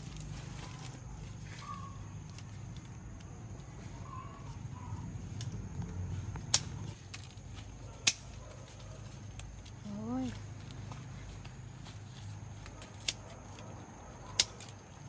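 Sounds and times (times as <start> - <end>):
scissors snipping stems: 6.5 - 8.4, 14.3 - 15.0.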